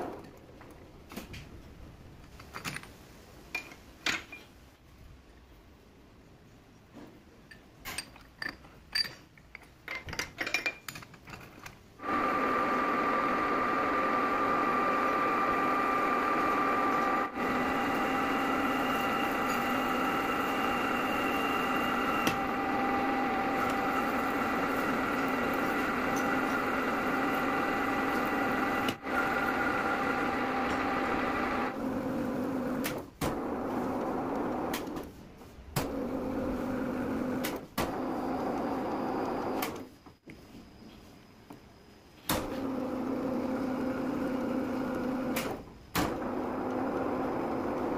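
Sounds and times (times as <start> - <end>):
metal tube clinking in chuck: 7.5 - 11.4
metal lathe whining: 12.0 - 32.8.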